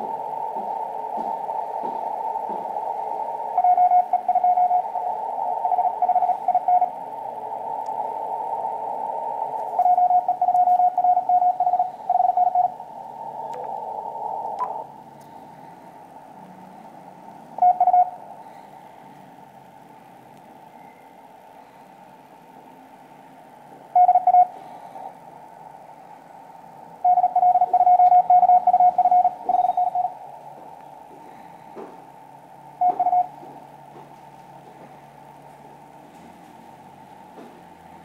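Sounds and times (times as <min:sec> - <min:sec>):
morse code tone: 0:00.0 - 0:07.1, 0:08.0 - 0:13.7, 0:17.6 - 0:18.2, 0:23.9 - 0:24.8, 0:27.0 - 0:30.2, 0:32.8 - 0:33.5
radio hiss: 0:00.0 - 0:38.0.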